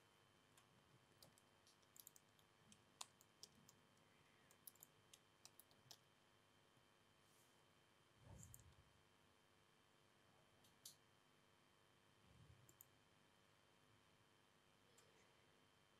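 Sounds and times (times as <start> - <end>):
laptop clicking: 0.6 - 3.8, 4.5 - 6.1.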